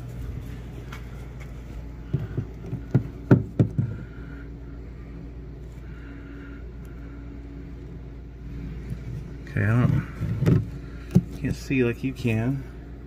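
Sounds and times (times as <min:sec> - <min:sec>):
steady low hum: 0:00.0 - 0:13.0
phone knocking against drywall: 0:02.2 - 0:04.0.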